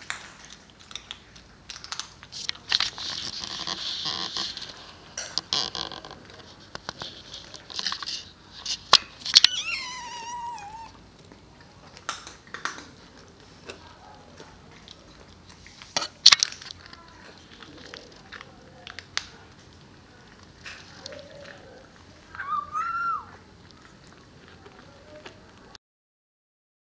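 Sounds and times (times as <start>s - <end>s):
kittens crunching dry kibble: 0.0s - 25.8s
kitten meowing: 9.4s - 11.0s, 22.3s - 23.4s.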